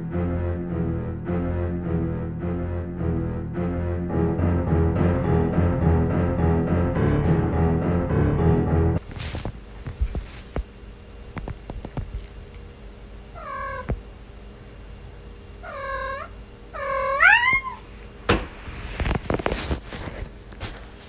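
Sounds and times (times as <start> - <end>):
kitten meowing: 15.7 - 17.8.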